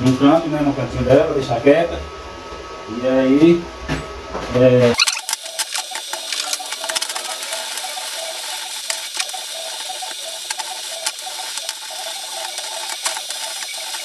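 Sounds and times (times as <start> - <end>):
welding arc crackling: 5.0 - 14.0.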